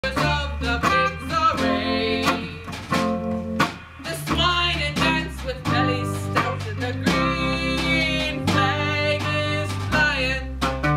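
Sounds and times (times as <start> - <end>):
instrumental accompaniment with beat: 0.0 - 10.9.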